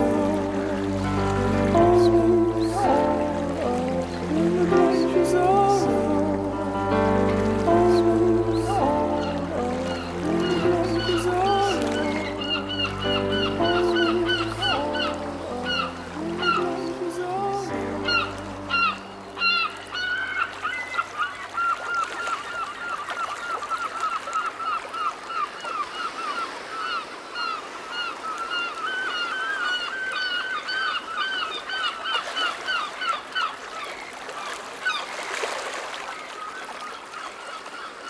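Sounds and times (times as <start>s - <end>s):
flock of birds calling: 8.4s - 34.0s.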